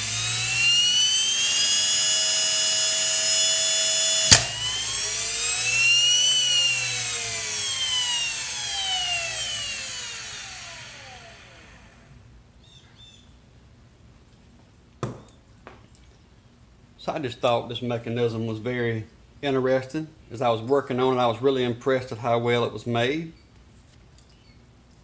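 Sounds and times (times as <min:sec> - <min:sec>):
motor whining: 0:00.0 - 0:12.2
solenoid snap: 0:04.2 - 0:04.7.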